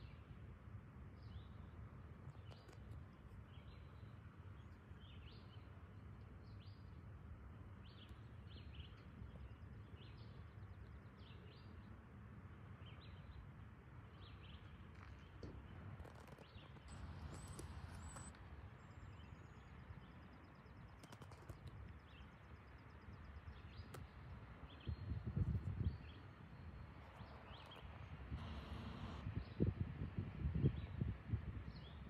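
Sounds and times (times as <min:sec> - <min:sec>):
small birds chirping: 0:12.8 - 0:29.6
steady low rumble: 0:15.5 - 0:19.8.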